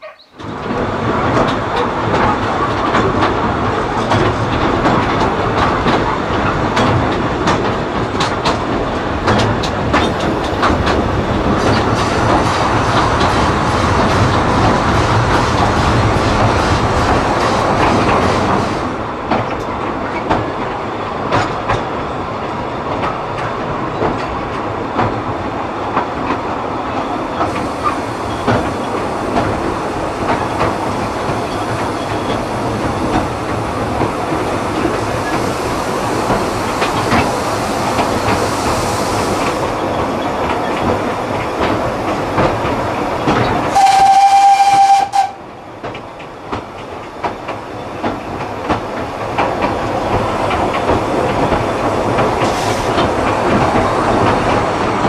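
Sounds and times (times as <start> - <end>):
rail joint clickety-clack: 0.0 - 55.0
train carriage rumbling: 0.0 - 55.0
steam whistle blast: 43.7 - 45.4.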